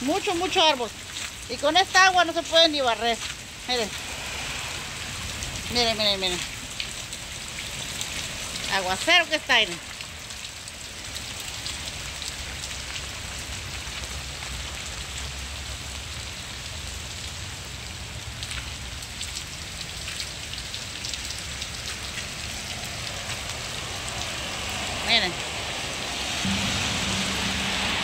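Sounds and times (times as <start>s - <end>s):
heavy rain hissing: 2.3s - 9.1s, 21.7s - 28.0s
low rumble: 26.4s - 28.0s.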